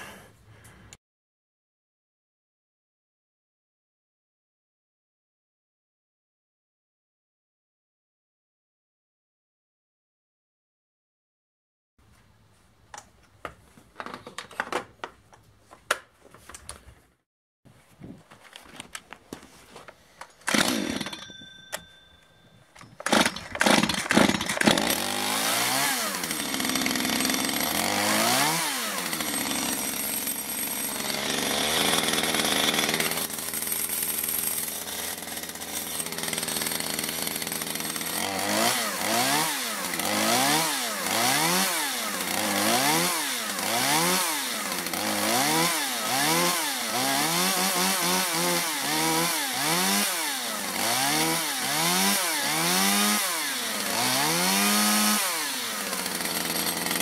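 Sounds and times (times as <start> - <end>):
chainsaw engine revving: 20.4 - 21.2, 23.0 - 57.0.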